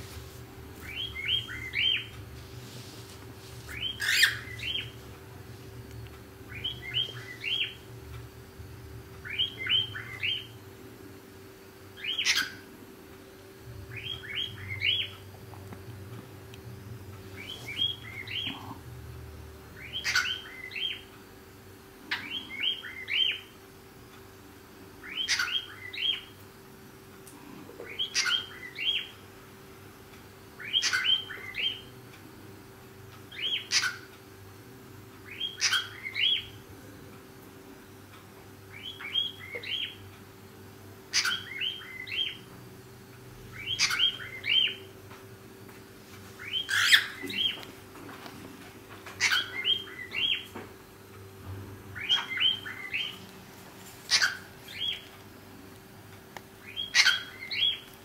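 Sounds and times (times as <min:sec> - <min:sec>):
faint steady hum: 0:00.0 - 0:58.0
cockatiel chirping: 0:03.7 - 0:04.9, 0:12.0 - 0:12.6, 0:19.8 - 0:21.0, 0:25.0 - 0:26.3, 0:27.9 - 0:29.1, 0:30.6 - 0:31.9, 0:33.3 - 0:34.0, 0:35.3 - 0:36.5, 0:41.1 - 0:42.4, 0:43.5 - 0:44.8, 0:46.4 - 0:47.6, 0:49.2 - 0:50.5, 0:52.0 - 0:53.2, 0:54.1 - 0:55.0, 0:56.6 - 0:57.9.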